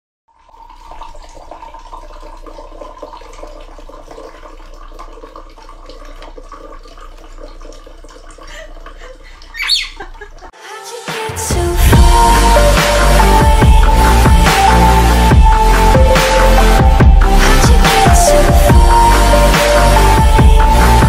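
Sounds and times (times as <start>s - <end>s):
water pouring into a glass: 0.3s - 10.5s
parrot squawking: 9.5s - 10.1s.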